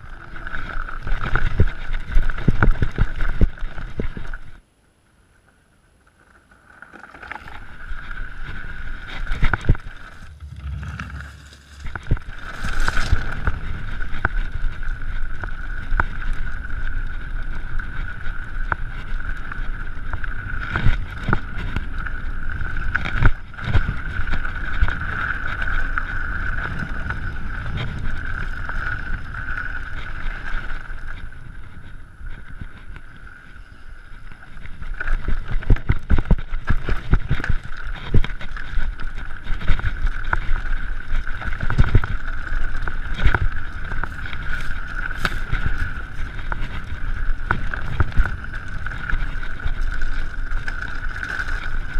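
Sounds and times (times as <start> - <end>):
bike rattling over rough ground: 0.0 - 4.6, 5.8 - 51.9
steady high whine: 7.6 - 16.8
wind buffeting microphone: 8.0 - 33.4, 34.0 - 51.9
low rumble: 8.6 - 18.2.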